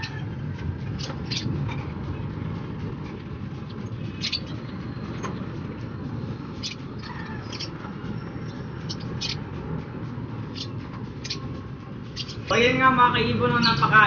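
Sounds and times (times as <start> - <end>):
low background rumble: 0.0 - 14.0
lovebirds chirping: 0.8 - 1.6, 3.6 - 9.6, 10.4 - 12.8.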